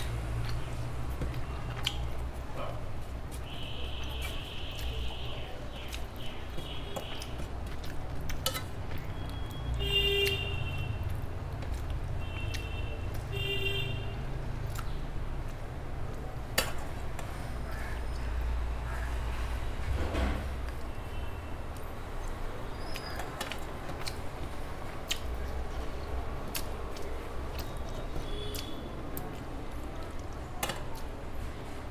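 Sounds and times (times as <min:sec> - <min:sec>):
fingers mixing rice and curry: 0:00.0 - 0:13.4, 0:20.6 - 0:31.9.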